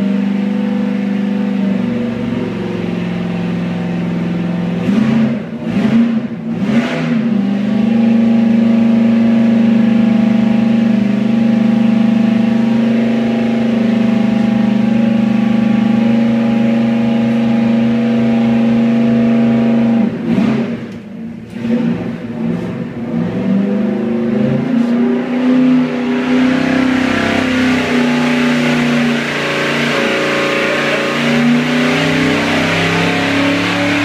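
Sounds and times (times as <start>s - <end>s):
engine throttle blips: 0.0s - 34.0s.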